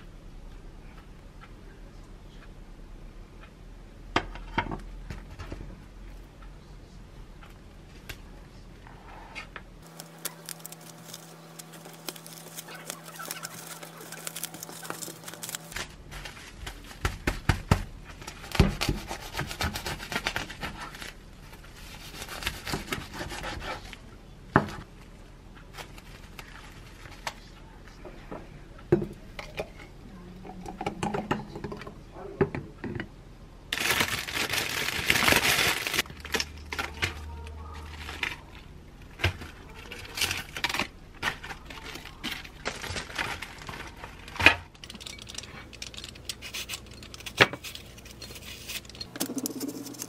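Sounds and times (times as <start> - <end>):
cling film crinkling: 9.8 - 17.1, 33.7 - 50.0.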